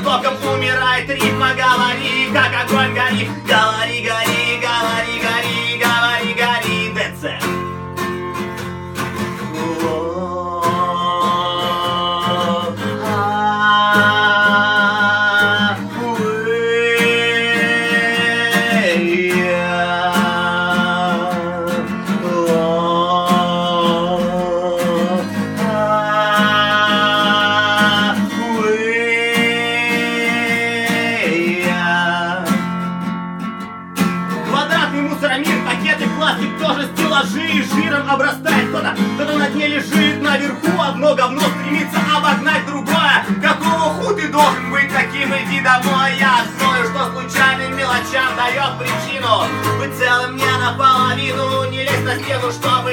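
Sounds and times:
man singing long notes: 0.0 - 7.6, 9.4 - 32.8, 34.4 - 52.9
acoustic guitar strumming: 0.0 - 52.9.

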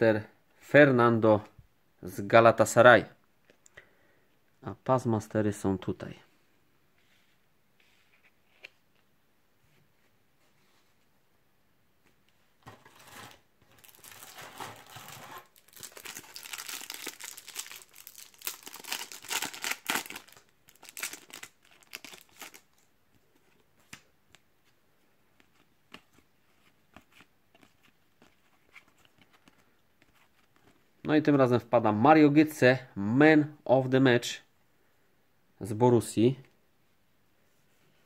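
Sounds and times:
card pack wrapper crinkling and tearing: 12.9 - 22.9.

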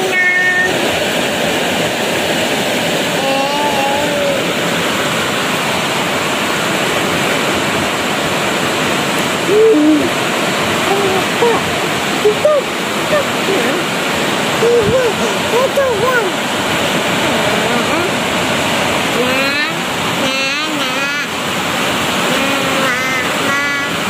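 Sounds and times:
heavy rain pouring: 0.0 - 24.0.

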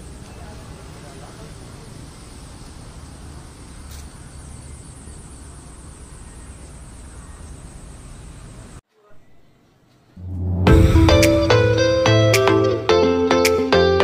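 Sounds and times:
low rumble: 10.2 - 12.3.

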